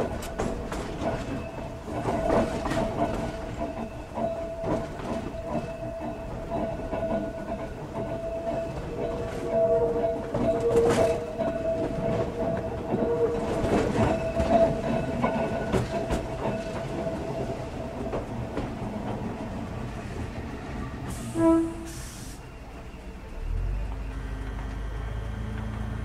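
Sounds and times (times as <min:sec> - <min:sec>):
train running noise: 0:00.0 - 0:26.0
train wheels clicking over rail joints: 0:00.0 - 0:26.0
air hiss: 0:21.1 - 0:22.5.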